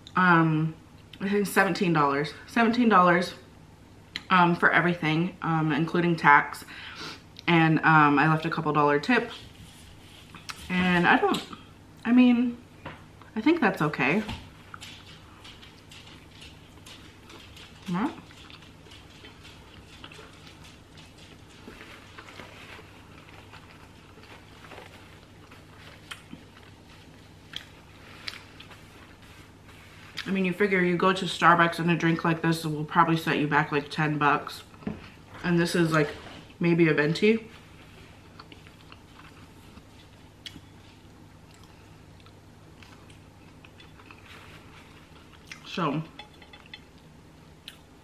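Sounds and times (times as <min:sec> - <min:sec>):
chewing and wet mouth sounds: 0:14.6 - 0:29.4, 0:37.9 - 0:47.9.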